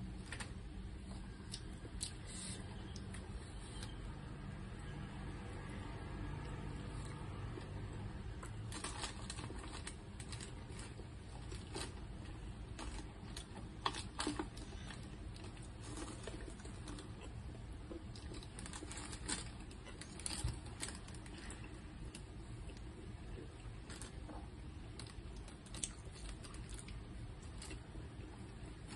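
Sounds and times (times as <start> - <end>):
low steady hum: 0.0 - 28.9
plastic and paper wrapping crinkling: 8.4 - 17.3, 17.9 - 22.2, 23.8 - 28.0.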